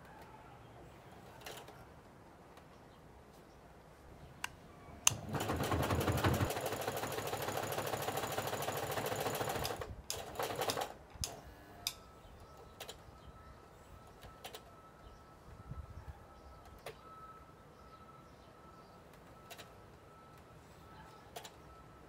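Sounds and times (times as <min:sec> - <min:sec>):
sewing machine running: 0:05.1 - 0:10.9.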